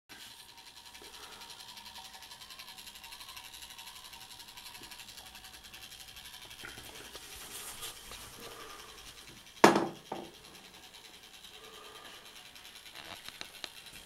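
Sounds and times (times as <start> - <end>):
clockwork motor whirring: 0.1 - 14.0
sharp loud knock: 9.6 - 10.0.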